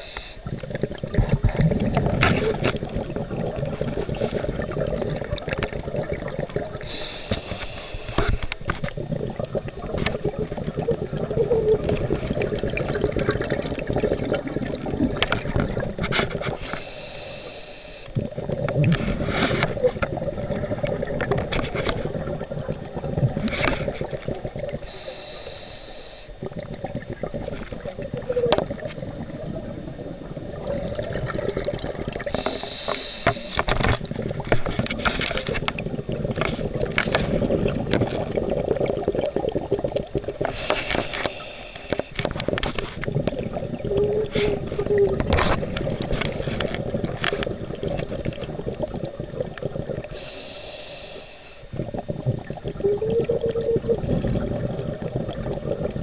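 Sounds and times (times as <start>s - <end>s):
regulator hiss on inhale: 0.0s - 0.6s, 6.8s - 8.7s, 16.6s - 18.2s, 24.8s - 26.6s, 32.3s - 33.8s, 40.4s - 42.2s, 50.0s - 51.8s
crackling bubbles: 0.0s - 56.0s.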